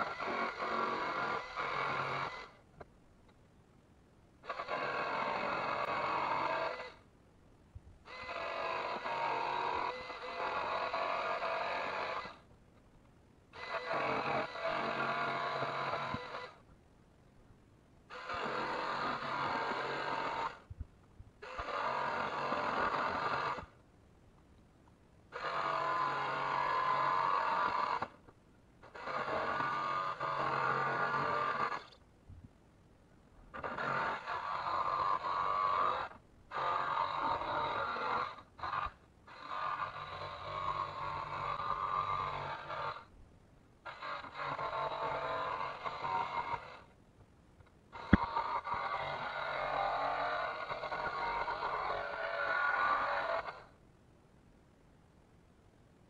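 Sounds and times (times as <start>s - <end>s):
power tool on steel panel: 0.0s - 2.6s, 4.4s - 7.1s, 8.0s - 12.5s, 13.5s - 16.7s, 18.1s - 20.7s, 21.4s - 23.8s, 25.3s - 32.0s, 33.5s - 43.1s, 43.8s - 47.0s, 47.9s - 53.8s.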